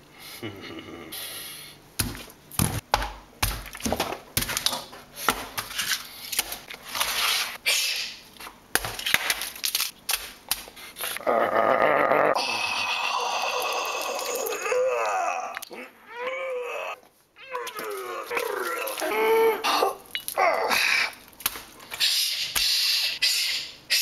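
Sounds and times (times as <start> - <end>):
food being smashed and crunched: 2.0 - 7.3, 8.7 - 10.8, 17.5 - 19.3, 19.9 - 22.0.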